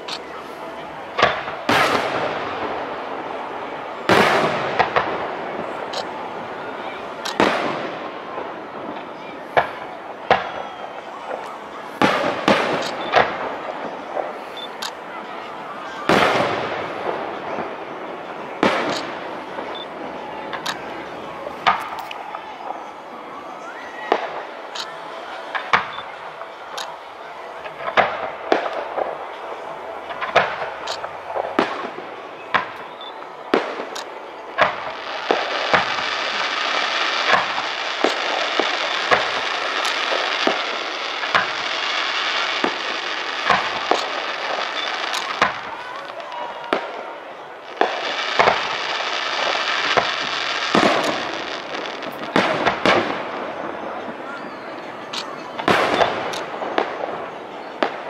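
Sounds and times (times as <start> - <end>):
steady hiss: 24.1 - 58.0
firework shells bursting: 30.1 - 58.0.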